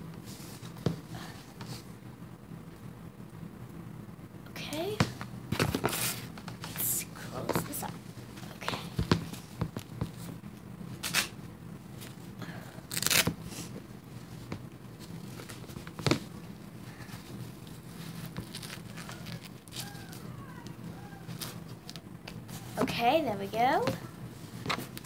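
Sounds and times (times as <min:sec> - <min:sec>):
tape tabs ripping: 0:11.0 - 0:11.4, 0:12.9 - 0:13.4
diaper crinkling: 0:12.9 - 0:13.3, 0:17.0 - 0:22.0.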